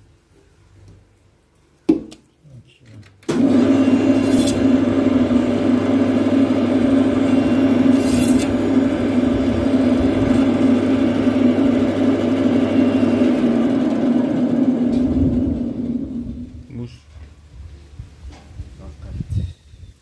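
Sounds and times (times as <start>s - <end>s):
band saw running: 3.3s - 16.6s.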